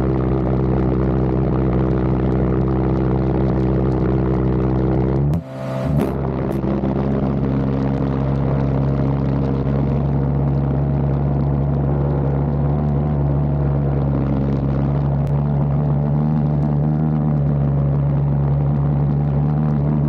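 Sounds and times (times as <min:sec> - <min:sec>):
pulsejet engine buzzing drone: 0:05.2 - 0:10.4.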